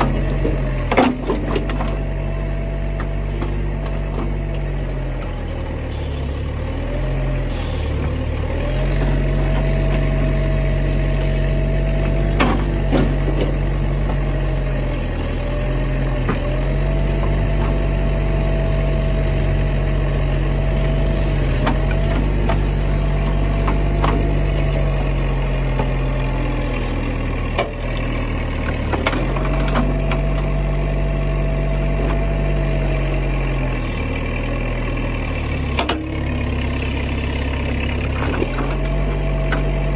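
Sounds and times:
diesel engine running: 0:00.0 - 0:39.9
hydraulic whine: 0:03.0 - 0:26.0, 0:35.2 - 0:39.9.

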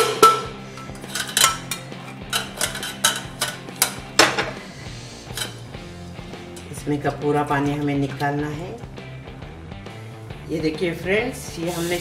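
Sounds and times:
metal pot and strainer clanking: 0:00.0 - 0:04.6, 0:05.3 - 0:05.7.

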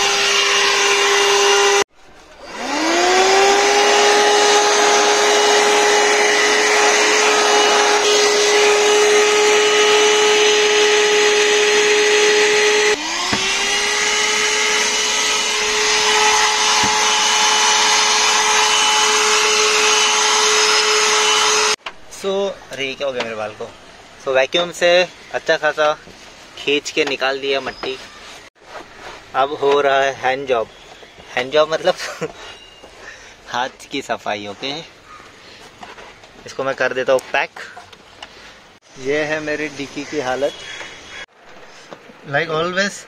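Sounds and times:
handheld vacuum cleaner running: 0:00.0 - 0:21.8.

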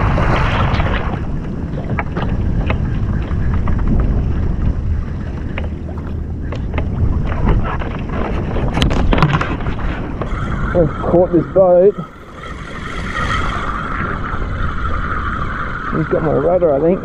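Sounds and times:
motorboat engine running: 0:00.0 - 0:11.2
wind buffeting microphone: 0:00.0 - 0:17.0.

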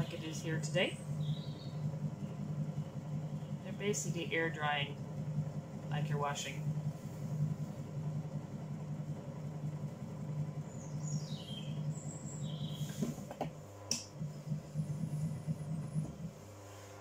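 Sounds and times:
potter's wheel humming: 0:00.0 - 0:17.0
bird chirps: 0:01.1 - 0:01.9, 0:10.7 - 0:13.0.

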